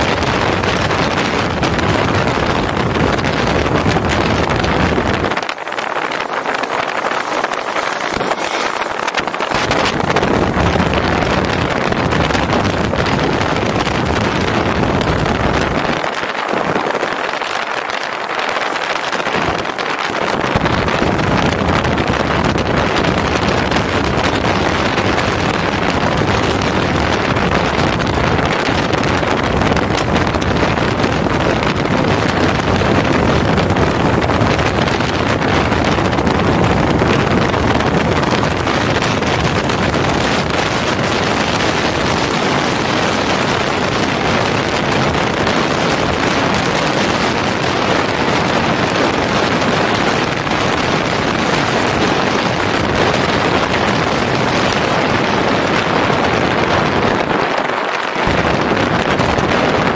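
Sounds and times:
motorcycle engine: 0.0s - 15.8s
road noise: 0.0s - 56.6s
wind rushing over microphone: 0.0s - 59.9s.

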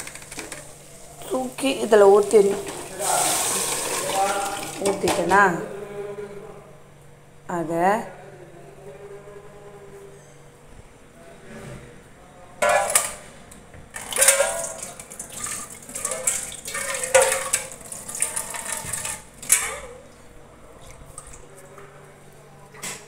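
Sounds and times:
steel kitchen vessels clattering: 0.0s - 5.6s, 12.6s - 13.2s, 13.9s - 20.0s
water splashing: 2.0s - 5.2s, 14.0s - 19.3s.

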